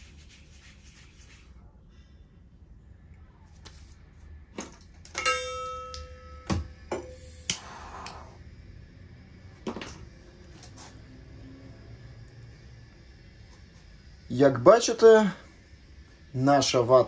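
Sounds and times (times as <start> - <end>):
metal bowl ringing: 5.2 - 7.4
lighter hissing: 7.2 - 8.5.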